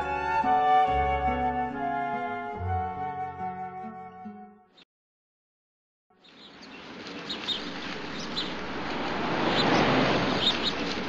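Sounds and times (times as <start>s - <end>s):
outdoor background noise: 6.2s - 11.0s
small birds chirping: 6.2s - 11.0s.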